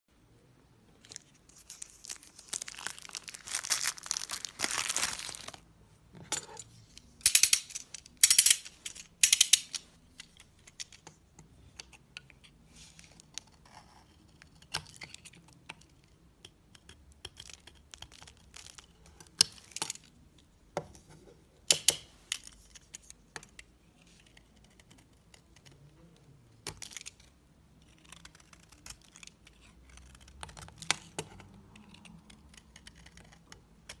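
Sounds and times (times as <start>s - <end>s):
paper wrapper crinkling and tearing: 1.0s - 5.6s.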